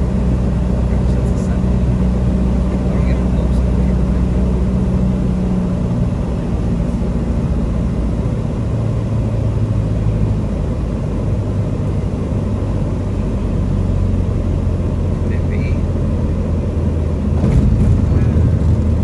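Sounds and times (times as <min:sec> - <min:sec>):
cabin noise rumble: 0:00.0 - 0:08.2, 0:10.5 - 0:19.0
airplane engine and propeller droning: 0:00.0 - 0:19.0.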